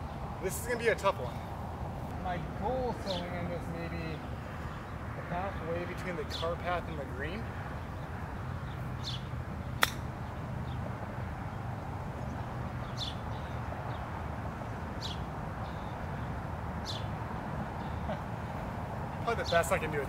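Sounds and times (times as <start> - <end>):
low outdoor noise: 0.0 - 20.0
bird chirping: 7.7 - 10.9, 12.2 - 14.1, 14.7 - 18.3
golf club striking ball: 9.8 - 10.1.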